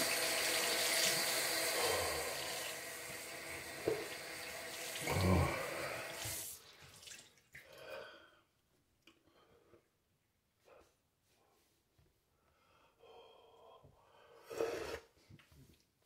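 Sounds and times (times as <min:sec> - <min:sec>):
tap running into sink: 0:03.6 - 0:04.5.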